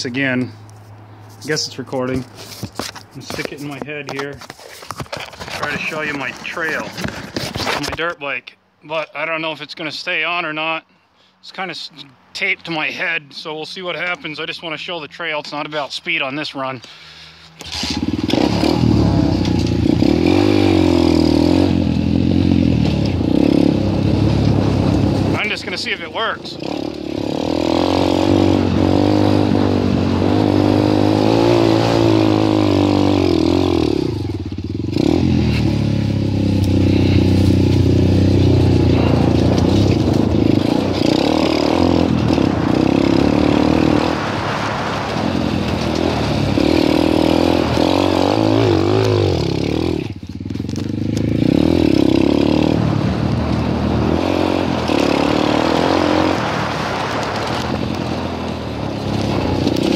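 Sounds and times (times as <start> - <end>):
dirt bike engine revving: 17.6 - 59.9.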